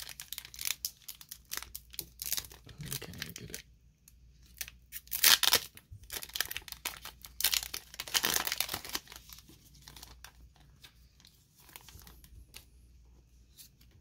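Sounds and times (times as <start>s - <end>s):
foil wrapper crinkling and tearing: 0.0s - 3.6s, 4.4s - 10.8s.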